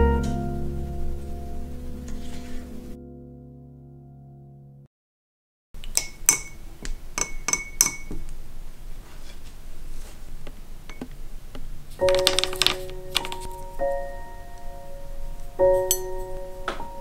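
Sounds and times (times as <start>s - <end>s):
background music: 0.0s - 4.8s, 12.1s - 17.0s
brush clinking against glass jar: 7.2s - 8.1s.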